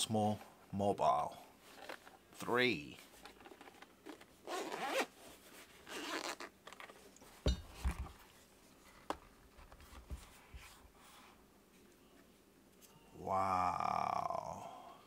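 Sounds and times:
zipper pulled open: 3.5s - 5.2s, 5.8s - 6.9s.

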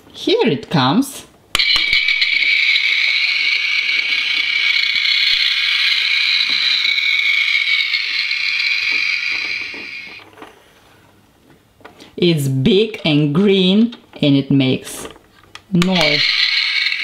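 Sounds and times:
toy truck electronic sound effect: 1.6s - 10.2s, 15.8s - 17.0s
plastic toy handling clicks: 15.4s - 17.0s.

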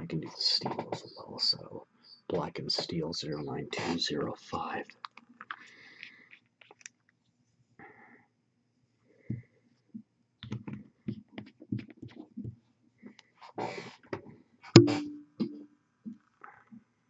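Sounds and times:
sharp ringing knock: 14.8s - 15.6s.

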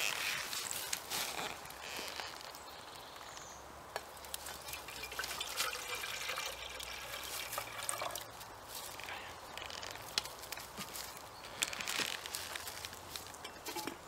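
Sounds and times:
water pouring into a kettle: 4.6s - 8.3s.

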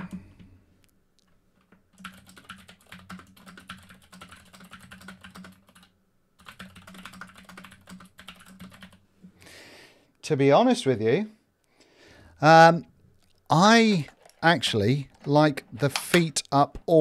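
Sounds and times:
mechanical keyboard typing: 1.6s - 9.0s.

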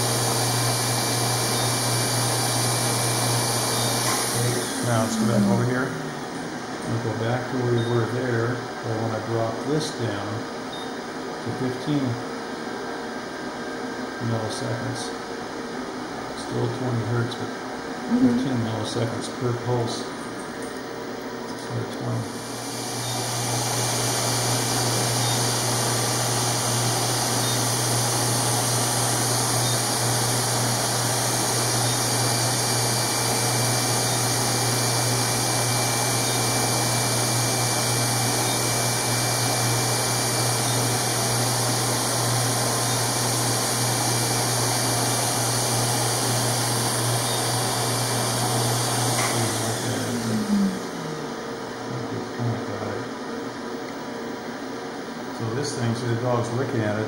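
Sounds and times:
motor winding down whine: 0.0s - 10.8s, 18.1s - 20.0s, 21.6s - 53.1s
smoke evacuator humming and hissing: 0.0s - 57.0s.

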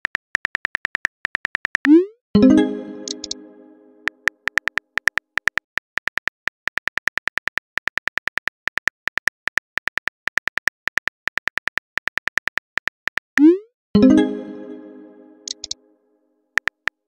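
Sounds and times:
phone keyboard typing clicks: 0.0s - 2.0s, 3.0s - 3.4s, 4.0s - 13.5s, 15.4s - 15.8s.

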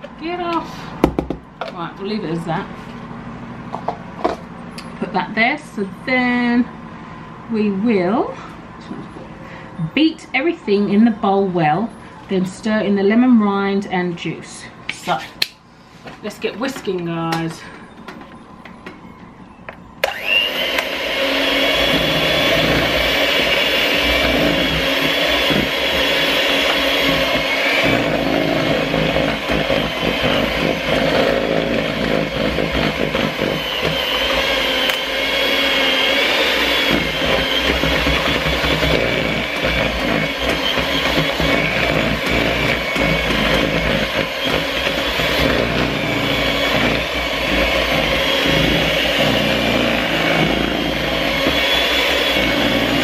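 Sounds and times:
electric hand mixer whisking: 20.0s - 53.0s.

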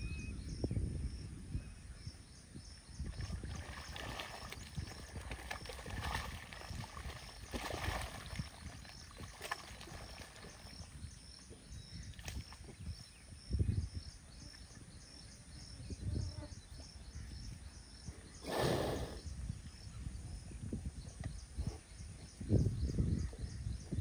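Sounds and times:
faint high chirp: 0.0s - 3.3s
mud water sloshing: 3.0s - 13.0s.

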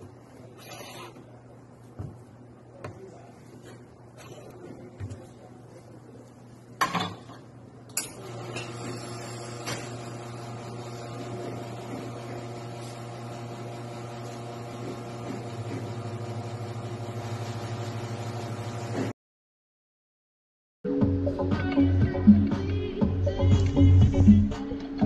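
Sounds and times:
espresso machine pump humming: 8.2s - 19.1s.

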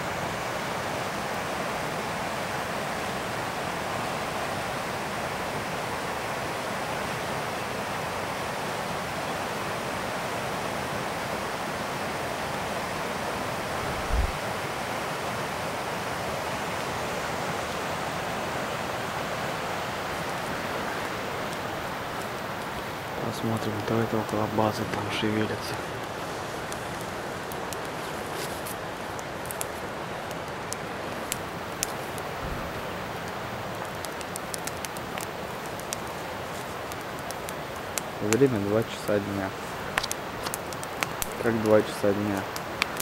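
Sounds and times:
river rapids rushing: 0.0s - 43.0s
low thump: 13.9s - 14.4s.

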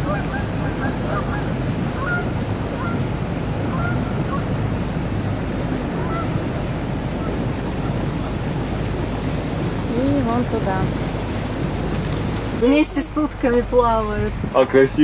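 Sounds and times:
boat engine drone: 0.0s - 15.0s
water washing past hull: 0.0s - 15.0s
wind on microphone: 0.0s - 15.0s
faint bird calls: 3.6s - 4.5s, 5.9s - 6.5s.

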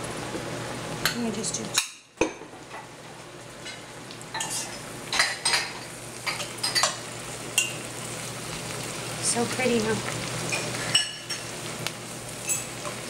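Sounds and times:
greens sizzling in oil: 0.0s - 13.0s
utensils clinking against pot: 3.6s - 7.0s, 10.5s - 11.5s, 12.4s - 13.0s.

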